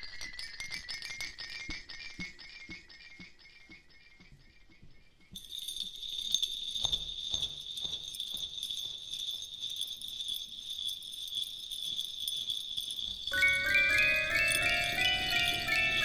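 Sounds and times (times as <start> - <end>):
bells jingling: 5.4 - 16.0.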